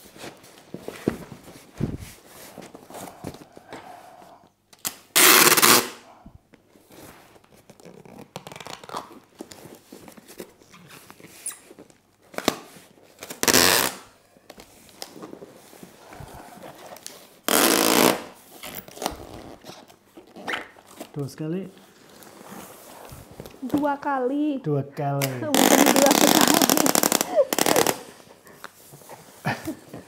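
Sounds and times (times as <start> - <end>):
packing tape pulled off roll: 4.7 - 6.0, 7.4 - 15.3, 16.8 - 21.2, 25.2 - 28.2.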